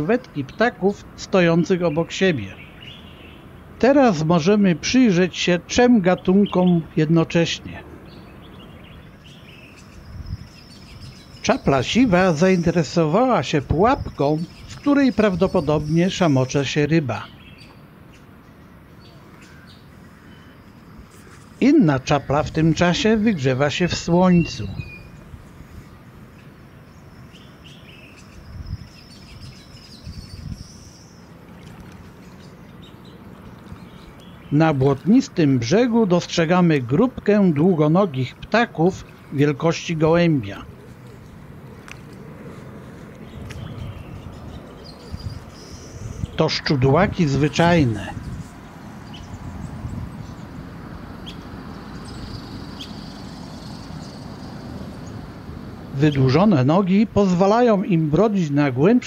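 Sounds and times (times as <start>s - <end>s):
high bird chirps: 26.4s - 31.4s, 51.2s - 55.2s.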